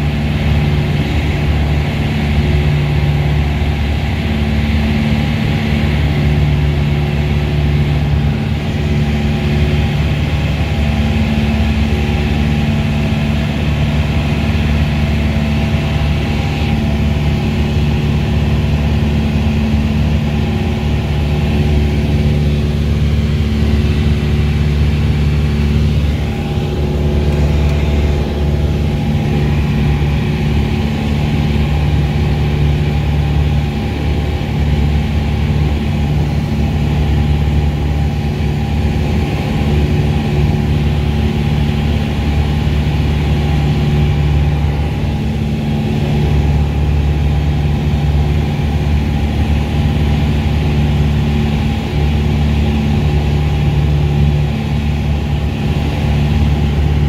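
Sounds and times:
light aircraft engine drone: 0:00.0 - 0:57.0.

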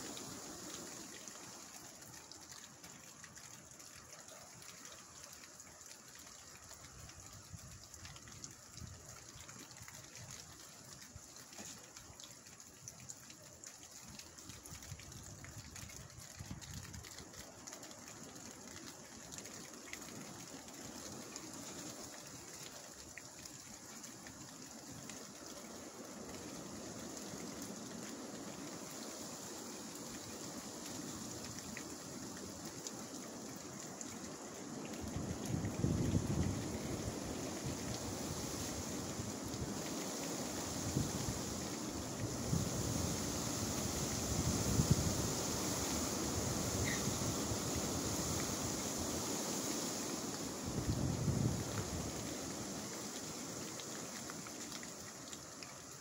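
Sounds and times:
strong wind rushing through trees: 0:00.0 - 0:02.4, 0:24.8 - 0:56.0.

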